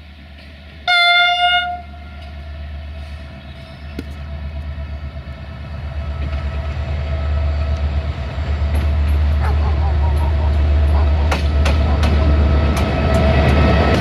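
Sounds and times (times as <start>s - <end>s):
locomotive diesel engine rumble: 0.0s - 14.0s
locomotive horn blast: 0.8s - 2.3s.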